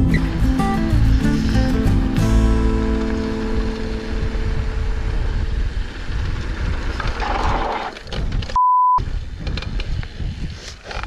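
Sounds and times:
background music: 0.0 - 5.2
bike tyres rumbling on dirt trail: 1.0 - 11.0
wind on camera: 2.8 - 11.0
censor bleep: 8.6 - 9.0.

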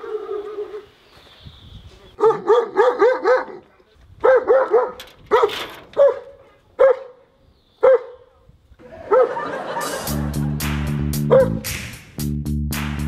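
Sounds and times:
dog barking: 2.2 - 7.2, 7.8 - 8.2, 9.0 - 9.4, 11.3 - 11.6.

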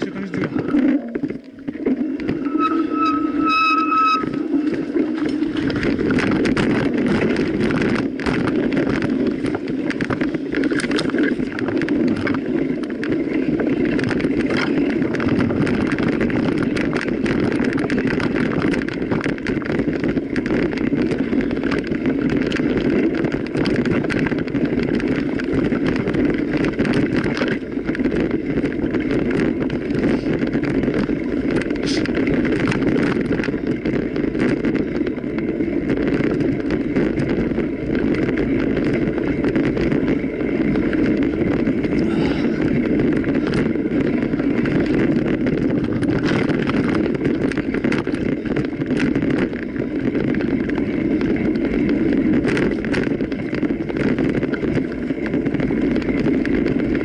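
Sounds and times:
bike tyres rolling on rough track: 0.0 - 57.0
small rattles and clicks: 0.0 - 57.0
short high tone: 2.4 - 4.4.

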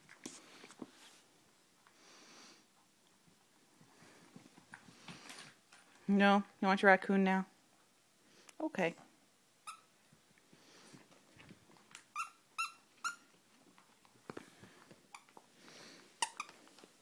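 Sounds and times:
squeaky toy squeaks: 9.6 - 9.9, 12.1 - 13.3, 16.2 - 16.6.

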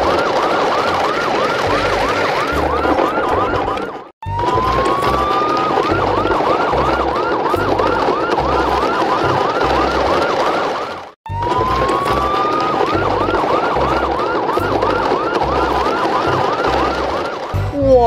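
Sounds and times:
electronic siren wailing: 0.0 - 17.7.

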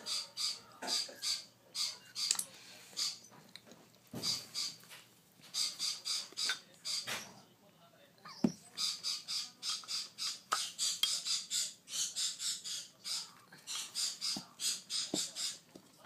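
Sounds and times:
parrot chick begging calls: 8.8 - 13.2.

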